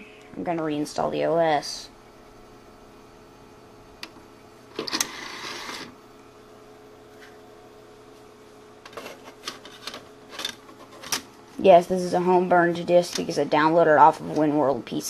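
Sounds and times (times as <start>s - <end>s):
computer humming: 0.0s - 15.0s
cd drive tray motor whir: 2.6s - 6.4s.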